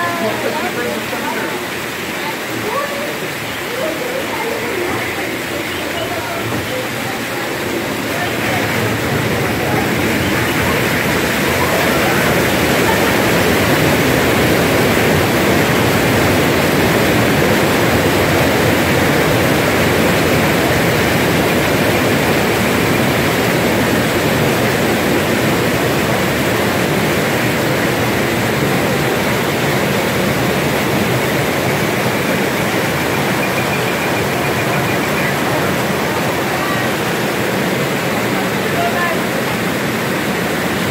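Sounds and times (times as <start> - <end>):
water rushing down rock channel: 0.0 - 40.9.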